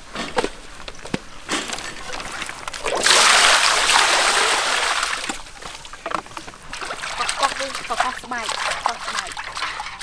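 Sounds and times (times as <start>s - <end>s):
water pouring into metal basin: 6.7s - 10.0s.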